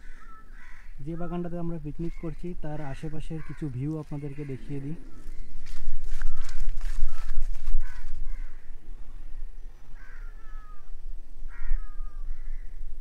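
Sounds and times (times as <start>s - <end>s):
crows cawing: 0.0s - 12.9s.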